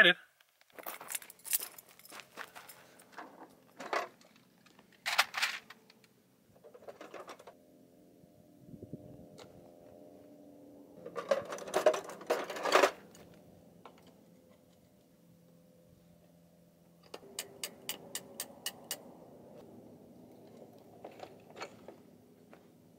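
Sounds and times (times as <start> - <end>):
metal tools clinking in toolbox: 11.0 - 13.2.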